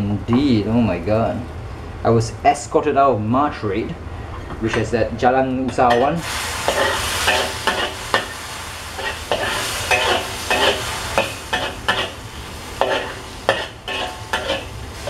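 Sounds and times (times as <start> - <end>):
sizzling in hot oil: 5.9 - 15.0
spatula scraping a wok: 5.9 - 15.0.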